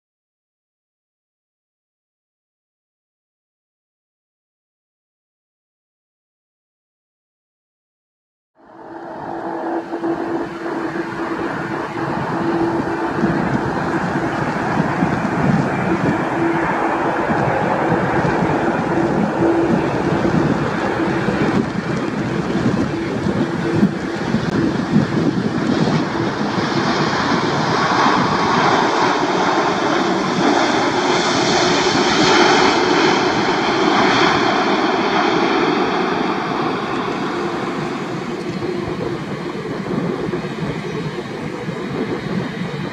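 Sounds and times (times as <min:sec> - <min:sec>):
jet engines roaring: 0:08.6 - 0:42.9.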